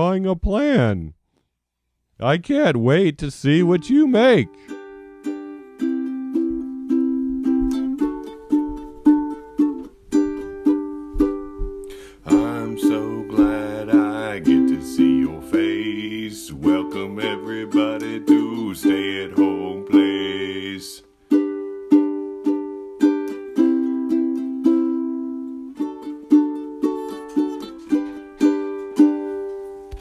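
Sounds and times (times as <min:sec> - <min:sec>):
plucked ukulele: 0:04.6 - 0:30.0
wordless vocal melody: 0:11.9 - 0:21.2.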